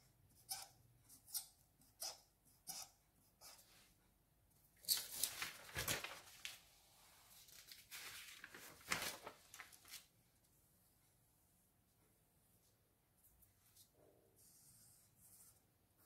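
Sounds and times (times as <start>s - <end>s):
paper sheets rustling: 4.8s - 10.2s.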